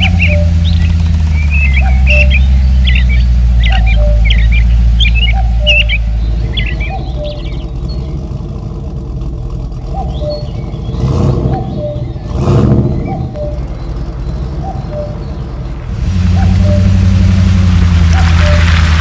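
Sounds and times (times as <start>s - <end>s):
deep steady engine drone: 0.0s - 19.0s
engine revving: 0.0s - 19.0s.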